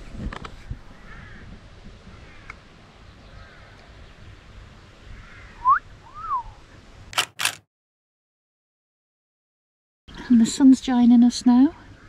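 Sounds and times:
sharp loud clacks: 7.2 - 7.6.

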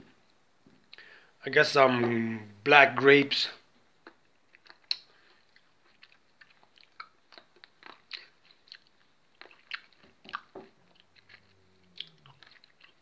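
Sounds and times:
person chewing grapes: 3.8 - 13.0.

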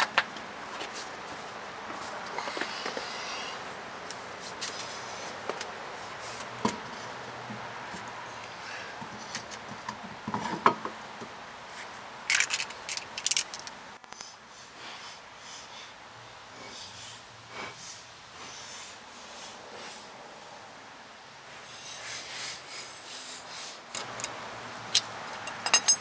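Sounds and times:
metal tool clicks and knocks: 24.9 - 26.0.

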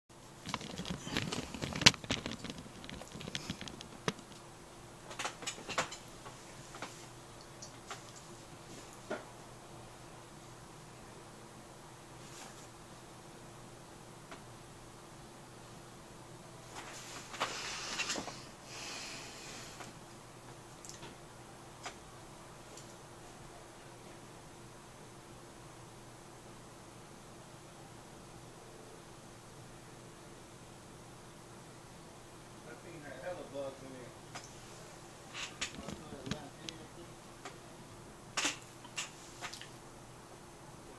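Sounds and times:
denim rustling: 0.4 - 4.3.

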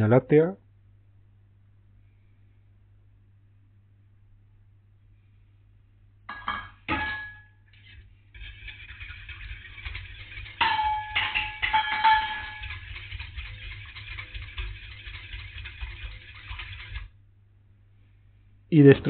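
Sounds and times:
whisk clinking on metal pan: 6.3 - 17.1
whisk swishing in liquid: 7.7 - 17.2.

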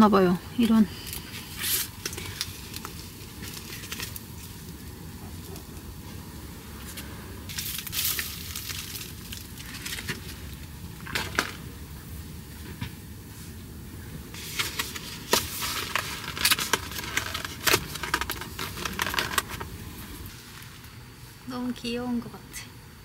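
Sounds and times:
low background noise: 0.0 - 23.0
plastic packaging crinkling: 1.4 - 4.8, 7.5 - 11.6, 14.4 - 20.3.

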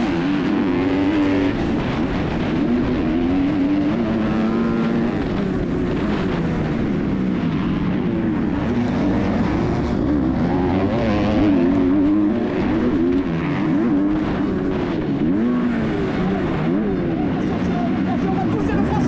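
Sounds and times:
motocross bike engine revving: 0.0 - 19.0.

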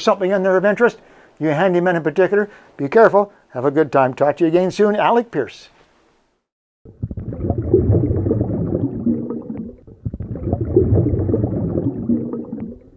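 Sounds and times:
muffled water bubbling and gurgling: 6.9 - 12.9.

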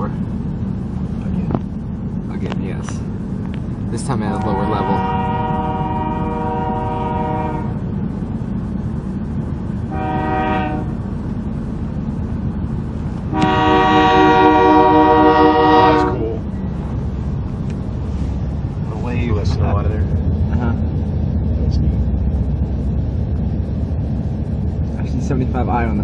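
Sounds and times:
low locomotive rumble: 0.0 - 26.0
locomotive air horn blasts: 4.3 - 7.8, 9.9 - 11.0, 13.3 - 16.4.

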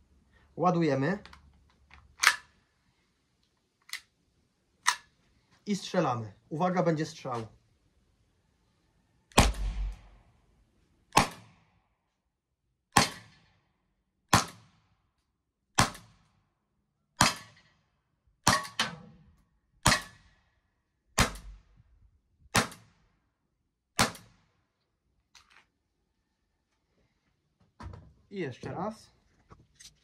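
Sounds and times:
air pistol shots: 9.3 - 10.2, 11.1 - 11.7, 13.0 - 13.5, 14.3 - 14.7, 15.8 - 16.1, 17.2 - 17.6, 19.8 - 20.2, 21.2 - 21.6, 22.5 - 22.9, 24.0 - 24.4.

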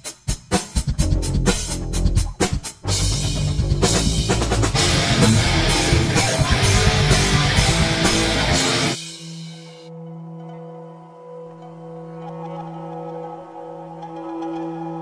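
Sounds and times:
rock jingle with guitar and drums: 0.4 - 9.8.

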